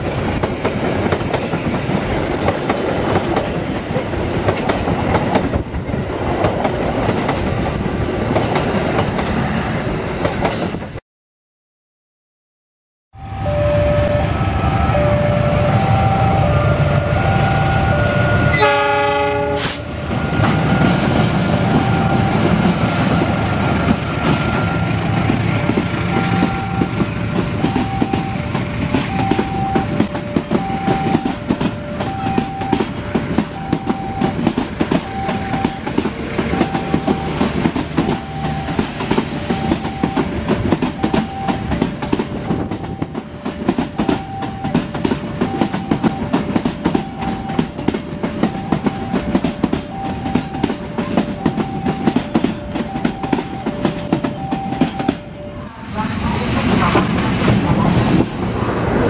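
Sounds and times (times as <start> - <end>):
train rumbling over rails: 0.0 - 11.0, 13.2 - 59.0
train horn blast: 13.2 - 20.9
two-tone crossing alarm: 13.2 - 56.1.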